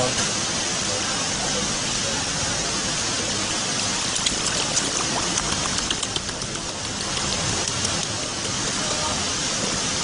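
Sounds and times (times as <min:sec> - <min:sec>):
rushing water: 0:00.0 - 0:10.0
high sharp ticks: 0:04.1 - 0:08.6.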